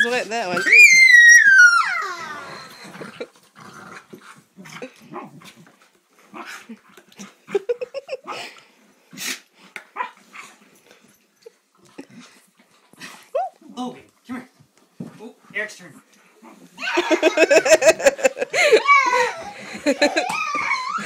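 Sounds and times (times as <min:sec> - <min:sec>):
dog yips: 0:00.0 - 0:02.7, 0:18.7 - 0:21.0
dogs growling: 0:01.6 - 0:10.6.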